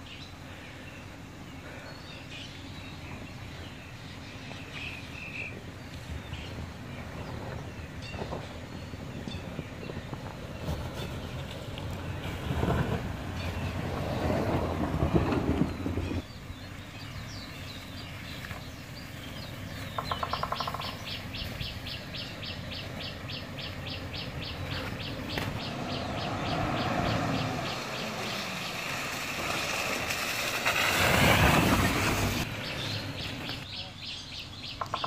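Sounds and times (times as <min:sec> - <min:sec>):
truck engine driving on snow: 0:00.0 - 0:20.1, 0:20.9 - 0:33.7
bird's rapid high ticking call: 0:19.9 - 0:22.0, 0:34.7 - 0:35.0.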